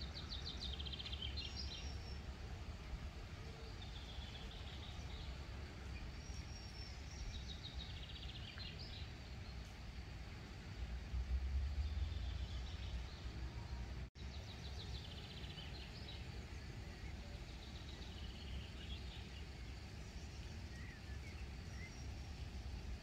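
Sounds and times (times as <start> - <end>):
faint birdsong with trills: 0.0 - 23.0
low rumble: 9.9 - 14.1.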